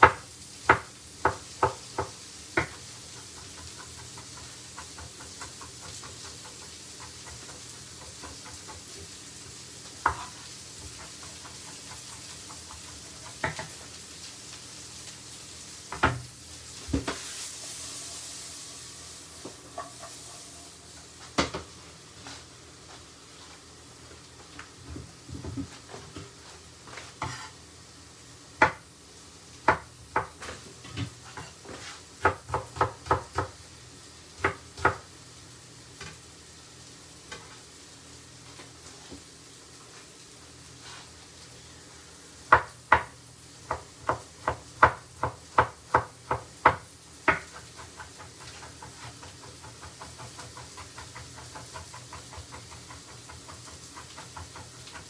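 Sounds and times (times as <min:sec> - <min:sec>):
knife chopping on wooden board: 0:00.0 - 0:02.8, 0:10.0 - 0:12.2, 0:13.3 - 0:13.8, 0:29.7 - 0:33.5, 0:43.7 - 0:55.0
vegetables sizzling in a frying pan: 0:00.0 - 0:55.0.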